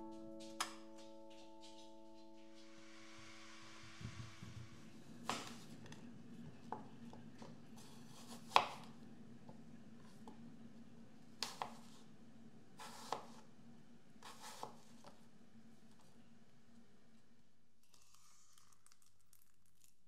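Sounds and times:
faint steady hum: 0.0s - 18.0s
knife cutting on chopping board: 7.8s - 8.9s, 12.8s - 13.4s, 14.2s - 14.8s.

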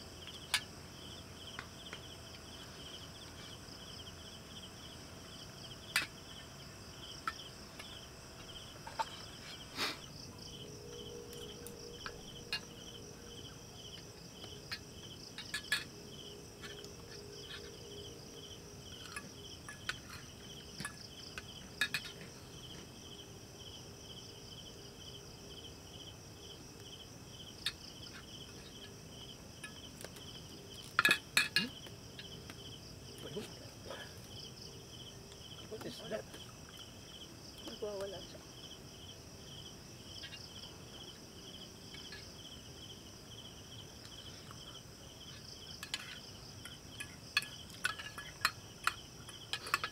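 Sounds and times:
crickets chirping: 0.0s - 49.9s
spoons clinking on metal plates: 30.9s - 31.7s, 45.8s - 46.2s, 47.0s - 49.9s.

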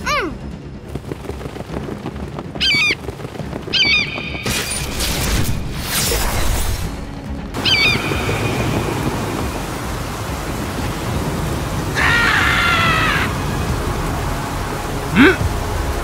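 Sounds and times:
steady rushing noise: 0.0s - 16.0s
high screeching creature cry: 12.0s - 13.3s.

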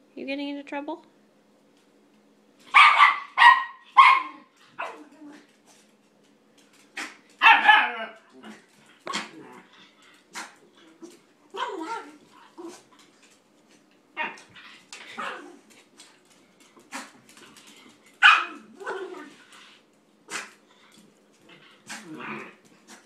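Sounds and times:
dogs barking and yipping: 2.7s - 5.1s, 7.0s - 8.3s, 18.2s - 19.4s.

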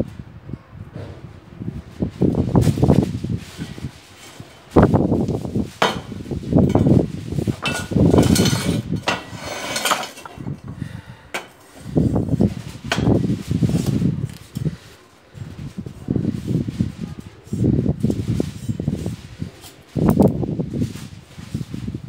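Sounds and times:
scraping and handling noises: 1.8s - 10.8s, 11.4s - 22.0s
metal tube clanking: 5.8s - 11.6s.

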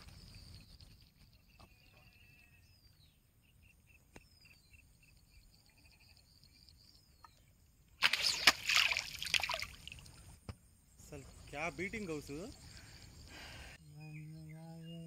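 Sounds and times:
fish thrashing and splashing: 8.0s - 10.1s.

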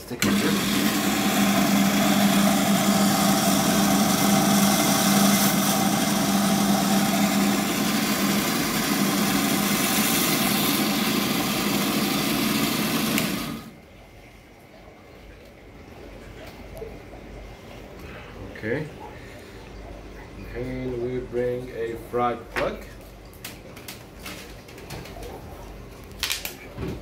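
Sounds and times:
band saw cutting coral: 0.0s - 13.8s.

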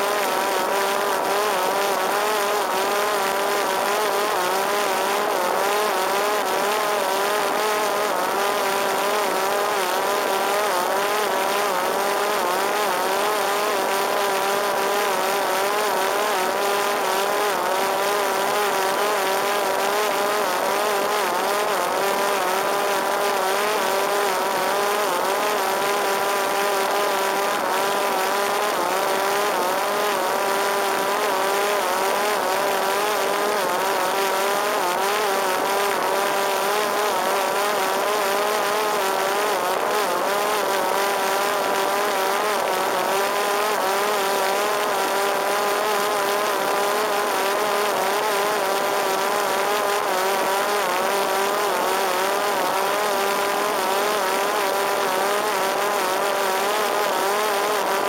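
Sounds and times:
drone motor whine: 0.0s - 58.0s.

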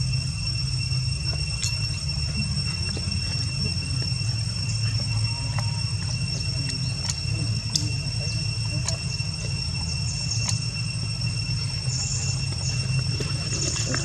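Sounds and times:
high-pitched drone: 0.0s - 14.0s
faint scattered clicks: 10.3s - 10.7s.

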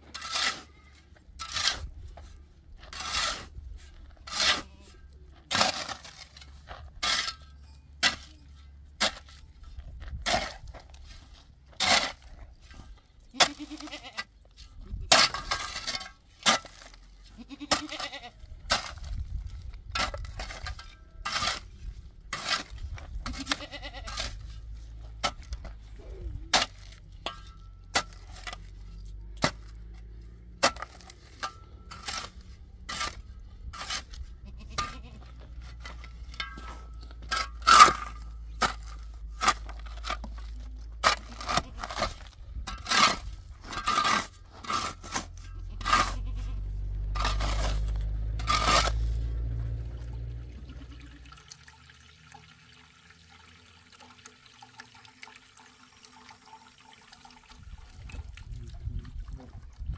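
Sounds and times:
goats bleating: 13.4s - 14.2s, 17.3s - 18.4s, 23.3s - 24.2s, 34.4s - 35.4s, 45.6s - 46.7s, 50.5s - 51.3s.

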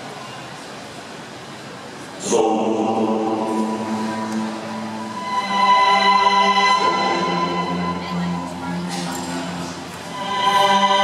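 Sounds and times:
orchestral music with held notes: 3.2s - 11.0s.

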